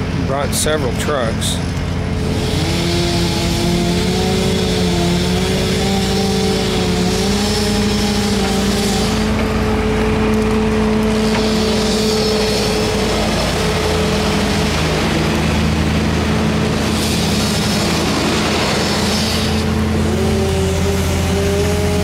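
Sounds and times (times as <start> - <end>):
truck engine droning: 0.0 - 22.0.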